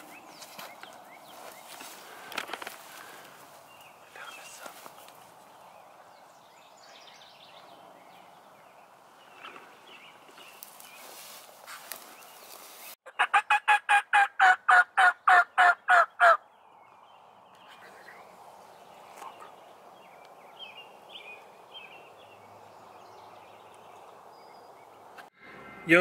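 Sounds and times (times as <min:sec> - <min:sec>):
faint small birds chirping: 0:00.0 - 0:13.0, 0:16.4 - 0:25.3
turkey yelps: 0:13.1 - 0:16.4.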